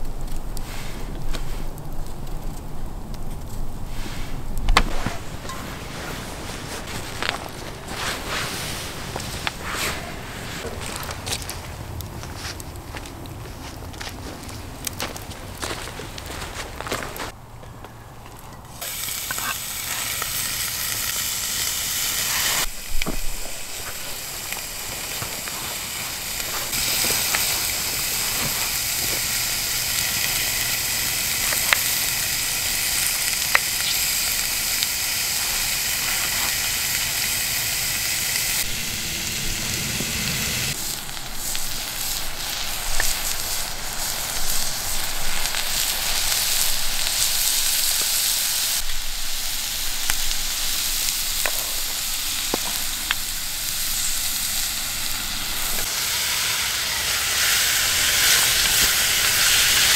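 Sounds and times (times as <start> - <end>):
sharp crackles: 0.0 - 59.9
bacon sizzling: 18.7 - 59.9.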